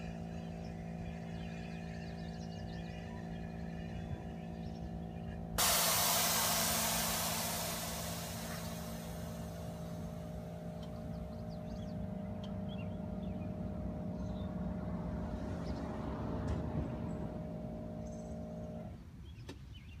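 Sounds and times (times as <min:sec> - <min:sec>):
air hiss: 0:05.6 - 0:11.0
air compressor humming: 0:05.6 - 0:14.2.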